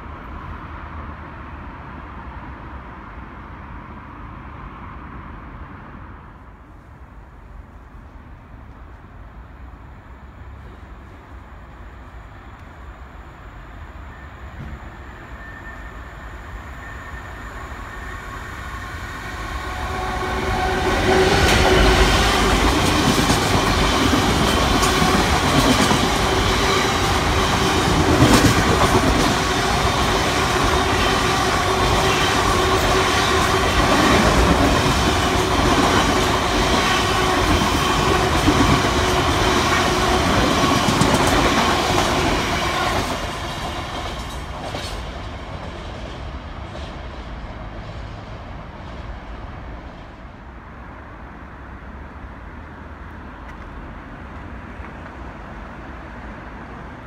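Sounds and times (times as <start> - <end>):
freight train passing: 0.0 - 57.0
wheels clattering on rails: 21.1 - 47.0.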